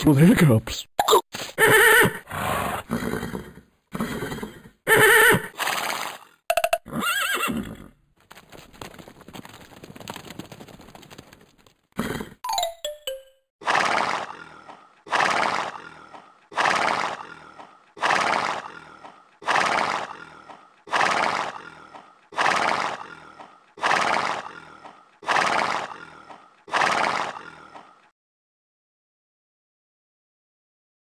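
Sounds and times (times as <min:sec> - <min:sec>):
horse snorting: 0:01.6 - 0:07.9, 0:12.0 - 0:12.4, 0:13.6 - 0:28.1.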